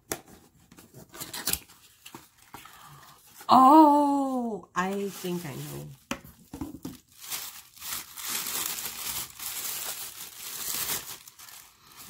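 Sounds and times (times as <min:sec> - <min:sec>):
tissue paper crinkling: 0:04.8 - 0:12.0.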